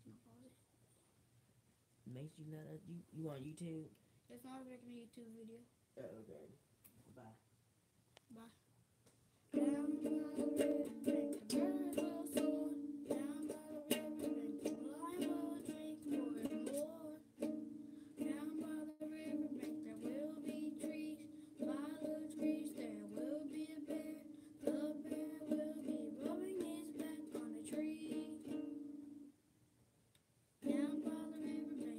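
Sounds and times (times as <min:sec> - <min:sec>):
young person singing: 0:09.5 - 0:28.9, 0:30.6 - 0:31.9
ukulele strumming chords: 0:09.5 - 0:29.3, 0:30.6 - 0:31.9.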